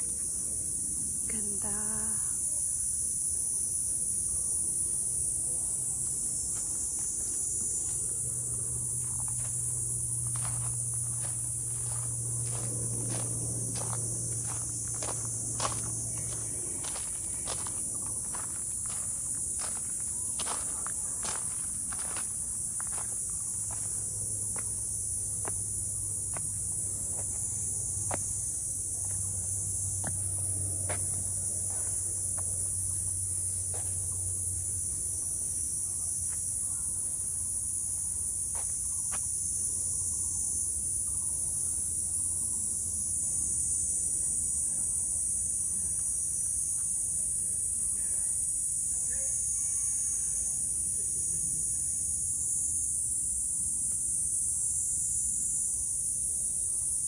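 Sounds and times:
high-pitched insect chorus: 0.0s - 57.0s
footsteps on trail: 6.4s - 8.3s, 8.9s - 25.7s.

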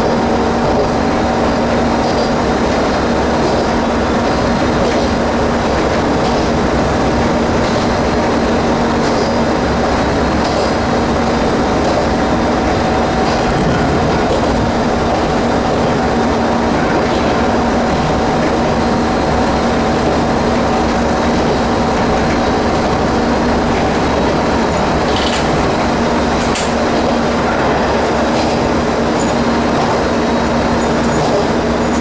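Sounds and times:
diesel railcar engine hum: 0.0s - 32.0s
wheels on rail: 0.0s - 32.0s.

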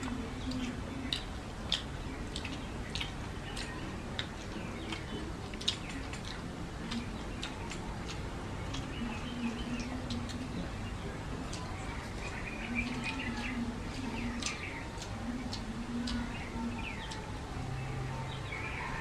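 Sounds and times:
wet mouth smacks and clicks: 0.0s - 9.0s
person chewing: 0.0s - 17.3s
hands squelching wet rice: 0.0s - 17.4s.

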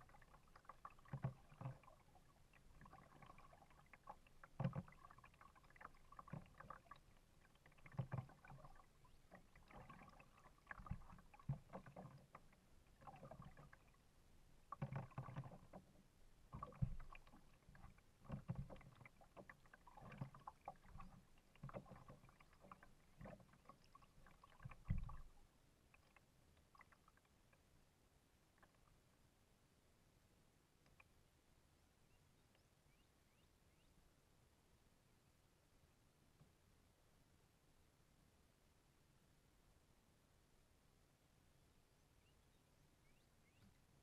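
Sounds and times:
water dripping: 0.0s - 14.0s, 14.6s - 15.9s, 16.5s - 27.6s
kayak paddle splashing: 0.0s - 25.4s
paddle low knocks: 14.7s - 23.8s, 24.4s - 25.3s.

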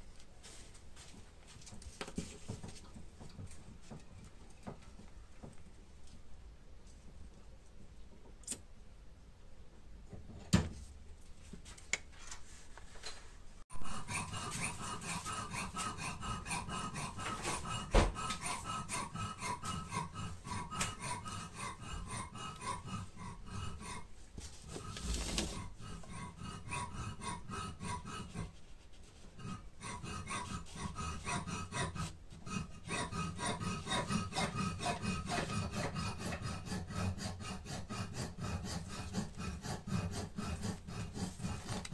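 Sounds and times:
rubbing or rasping strokes: 12.3s - 41.9s.

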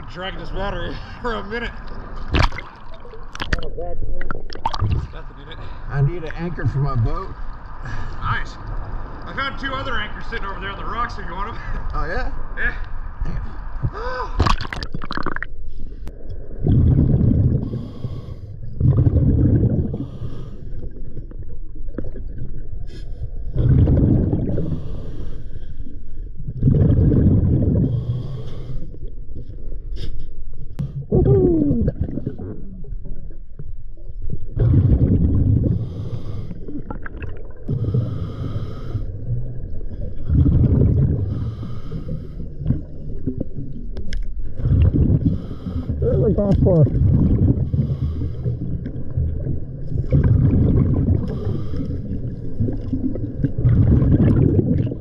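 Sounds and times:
underwater bubbling exhalations: 1.8s - 7.2s, 13.2s - 30.1s, 30.7s - 55.0s
hissing inhalations: 35.7s - 36.8s, 37.7s - 39.2s, 41.2s - 42.7s, 45.2s - 46.3s, 47.6s - 48.7s, 51.2s - 52.2s.

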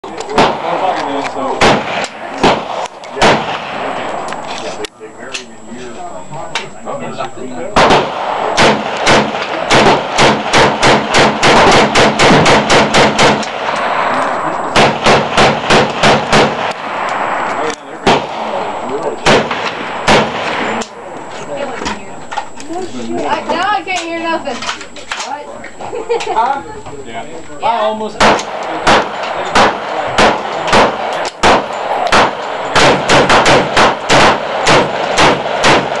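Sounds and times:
rifle shots: 0.3s - 4.3s, 7.8s - 21.7s, 28.2s - 36.0s.

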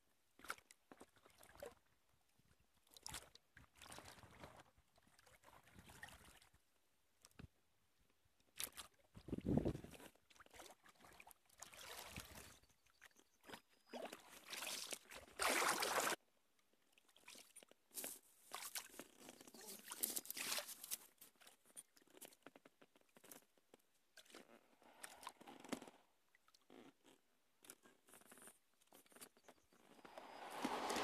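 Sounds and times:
rustling and scraping: 28.2s - 31.0s.

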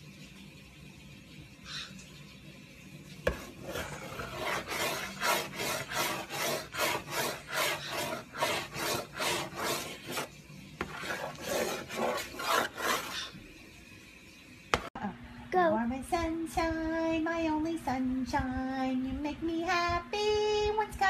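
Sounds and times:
bird beak rasping on wood: 3.3s - 13.4s.

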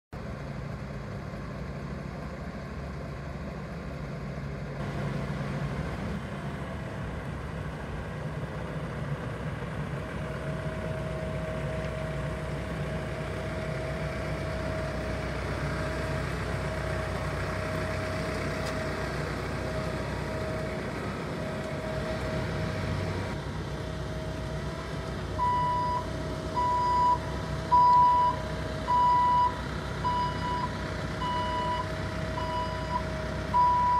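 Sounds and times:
diesel engine running: 0.1s - 33.9s
reversing alarm beeping: 25.4s - 33.9s.

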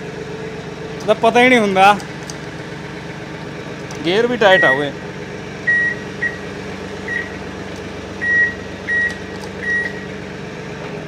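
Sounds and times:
diesel engine idling: 0.0s - 11.0s
high electronic beeps: 4.4s - 4.9s, 5.7s - 6.4s.

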